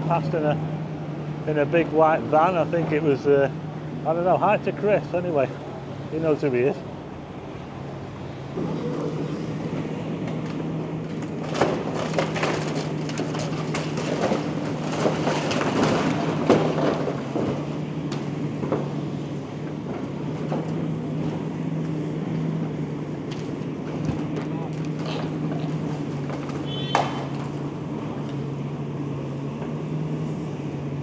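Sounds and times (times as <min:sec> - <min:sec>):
diesel engine running: 0:00.0 - 0:31.0
debris crunching and clattering: 0:10.2 - 0:18.9, 0:23.3 - 0:27.7.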